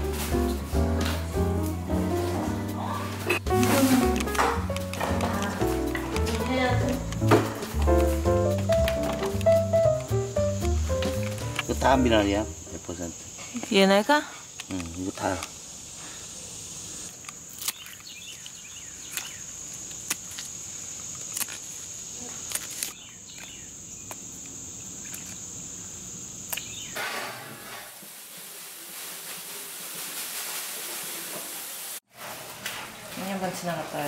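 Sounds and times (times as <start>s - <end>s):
even hiss: 0.0s - 17.2s, 24.3s - 32.1s
insects droning: 2.4s - 30.0s
sharp clicks: 4.2s - 8.0s, 8.6s - 11.7s.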